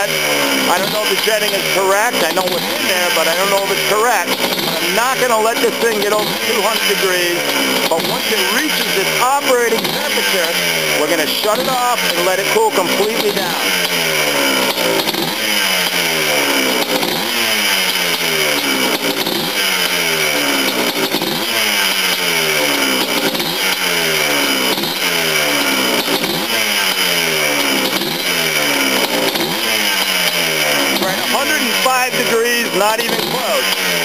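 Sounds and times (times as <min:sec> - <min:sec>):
two-stroke engine revving: 0:00.0 - 0:34.0.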